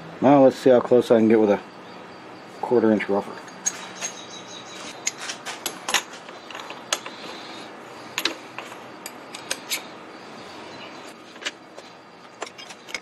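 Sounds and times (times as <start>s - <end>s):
metallic clicks and clinks: 12.3s - 13.0s.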